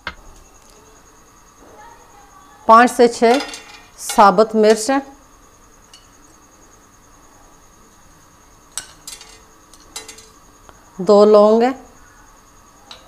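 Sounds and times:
spices and utensils clinking: 0:03.0 - 0:05.0, 0:05.8 - 0:06.4, 0:08.7 - 0:10.5.

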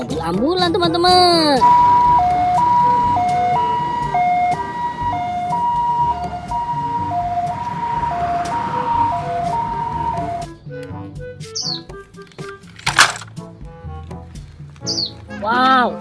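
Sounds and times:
low road rumble: 0:00.0 - 0:15.4
two-tone ambulance siren: 0:01.6 - 0:10.7.

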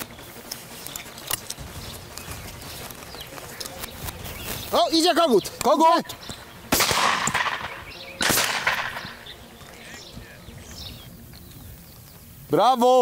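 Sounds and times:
shotgun shots with echo: 0:06.7 - 0:09.2.

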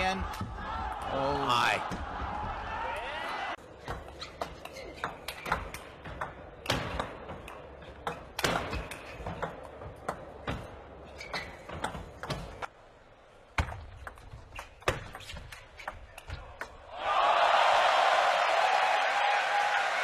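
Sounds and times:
arena crowd noise: 0:00.0 - 0:03.6, 0:16.6 - 0:20.0.

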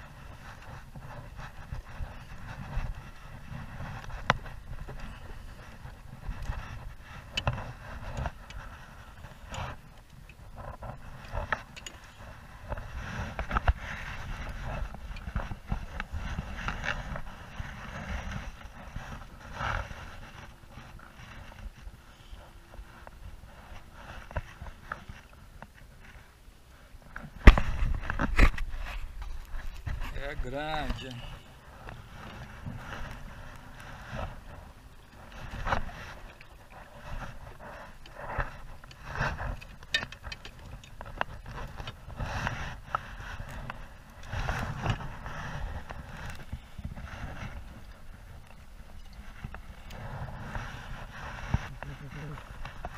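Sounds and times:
low rumble on microphone: 0:00.0 - 0:52.9
fishing gear knocks and clicks: 0:03.6 - 0:20.5, 0:31.8 - 0:50.6
scraping and rustling: 0:27.1 - 0:52.9.

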